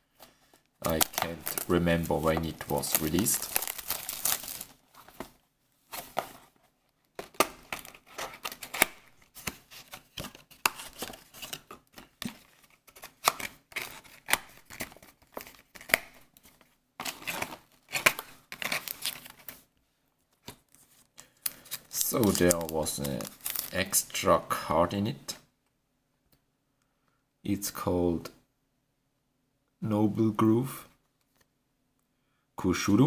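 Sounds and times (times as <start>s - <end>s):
card and paper rustling: 0.2s - 19.7s, 20.4s - 24.0s.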